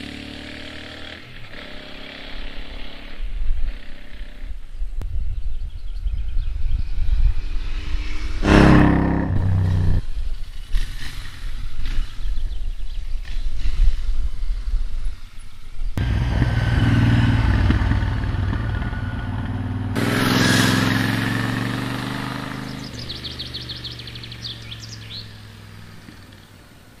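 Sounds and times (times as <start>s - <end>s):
motorcycle engine passing by: 0.0s - 4.8s, 6.6s - 12.2s, 16.0s - 26.4s
birds chirping rapidly: 20.8s - 27.0s.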